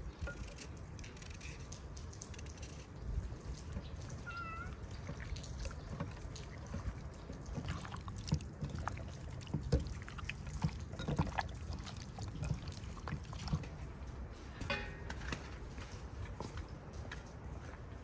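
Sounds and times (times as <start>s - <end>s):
hands squishing raw chicken: 3.6s - 14.0s.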